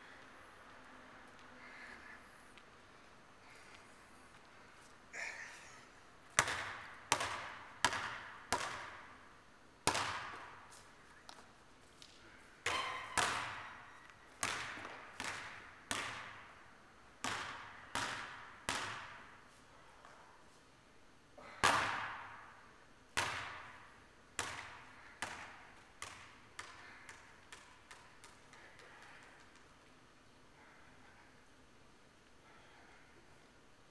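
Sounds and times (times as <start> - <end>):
basketball hitting rim: 6.4 - 9.0, 9.9 - 10.4, 12.7 - 13.7
basketball bouncing on gym floor: 6.4 - 9.1, 9.8 - 10.6, 12.6 - 16.5, 17.2 - 19.3, 21.5 - 22.5, 23.2 - 29.3.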